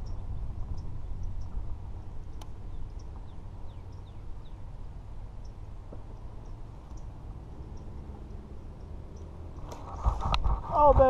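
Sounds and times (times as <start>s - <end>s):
faint high bird chirps: 0.0s - 1.5s
wind noise on microphone: 0.0s - 7.2s, 9.4s - 11.0s.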